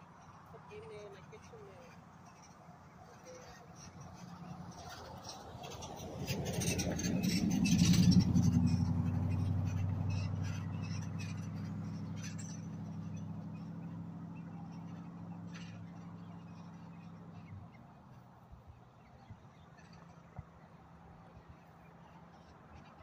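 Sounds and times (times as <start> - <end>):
pickup truck driving past: 1.4 - 18.5.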